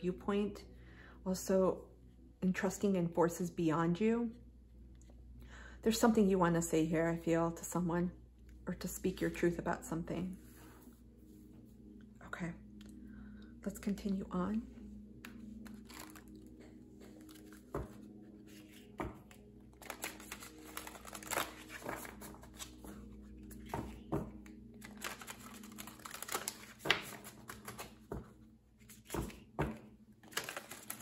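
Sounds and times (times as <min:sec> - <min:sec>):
faint steady hum: 0:00.0 - 0:25.6
cards being shuffled: 0:15.2 - 0:31.0.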